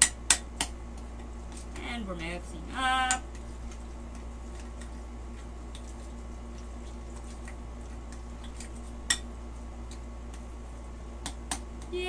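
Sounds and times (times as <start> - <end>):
steady low hum: 0.0 - 12.0
utensil stirring in glass bowl: 3.2 - 10.0.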